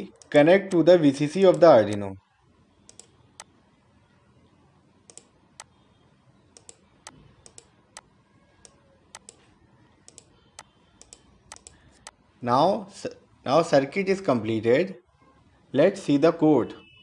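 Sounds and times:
low background hiss: 0:00.0 - 0:16.6
computer mouse button clicking: 0:02.9 - 0:03.5, 0:05.1 - 0:05.3, 0:06.6 - 0:09.4, 0:10.1 - 0:12.2.

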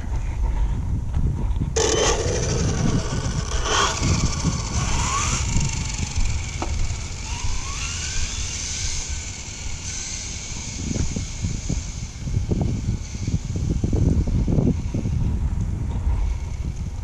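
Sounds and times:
wind rumble on microphone: 0:00.0 - 0:17.0
rc car electric motor whining: 0:01.8 - 0:12.2.

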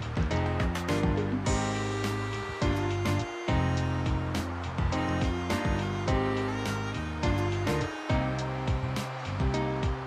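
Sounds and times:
background music with sharp beat: 0:00.0 - 0:10.0.

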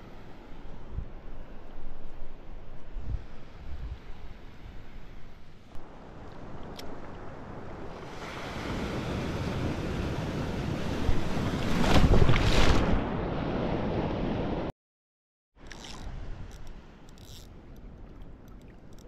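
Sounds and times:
wave rushing and splashing: 0:05.8 - 0:14.7
water lapping: 0:15.6 - 0:19.0.

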